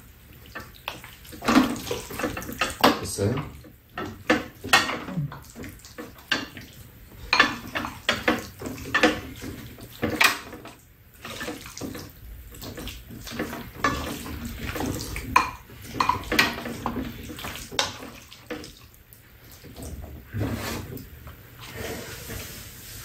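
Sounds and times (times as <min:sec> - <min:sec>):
chopsticks and spoon clinking on dishes: 0:01.4 - 0:06.7, 0:07.3 - 0:09.3, 0:15.3 - 0:17.1.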